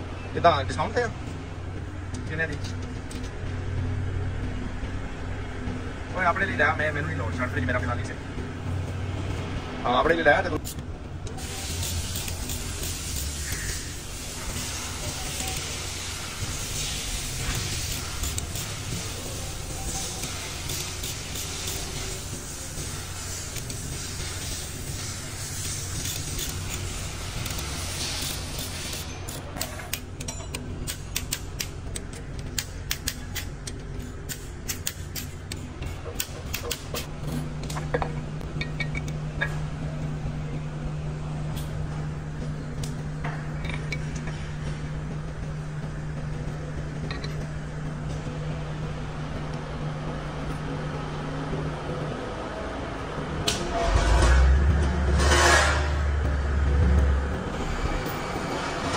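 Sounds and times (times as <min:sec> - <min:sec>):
workshop hum: 0:00.0 - 0:58.9
hiss: 0:11.4 - 0:30.0
low held tone: 0:50.5 - 0:58.9.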